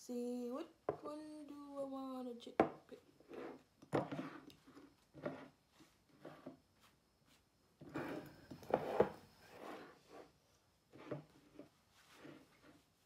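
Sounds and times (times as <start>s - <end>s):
glass jars scraping: 7.8s - 10.3s.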